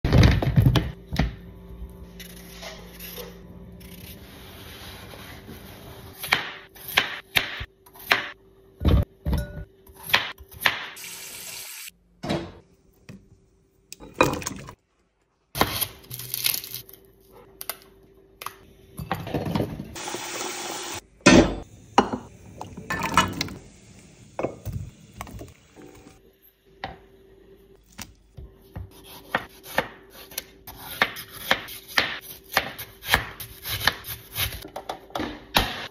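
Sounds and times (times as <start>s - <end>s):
water boiling: 22.0s - 26.2s.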